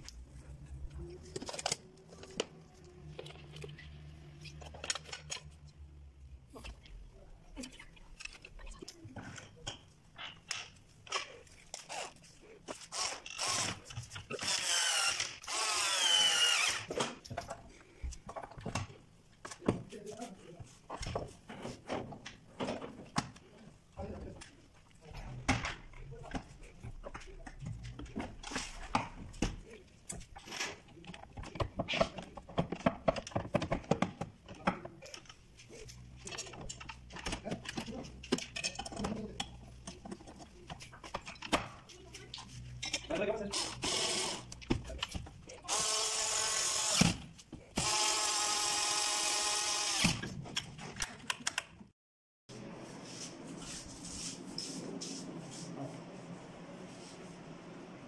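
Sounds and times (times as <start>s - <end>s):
cordless drill motor whine: 14.4s - 16.9s, 45.7s - 47.0s, 47.8s - 50.1s.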